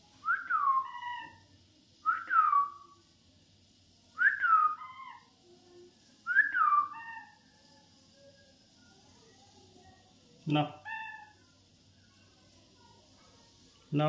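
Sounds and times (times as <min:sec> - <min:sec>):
parakeet whistling: 0:00.2 - 0:01.4, 0:02.0 - 0:03.0, 0:04.2 - 0:05.3, 0:06.2 - 0:07.5, 0:10.7 - 0:11.4.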